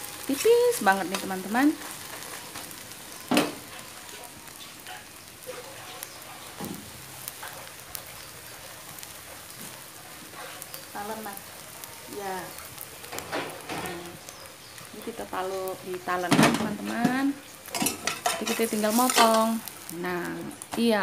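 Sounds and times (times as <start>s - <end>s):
omelette sizzling in a pan: 0.0s - 21.0s.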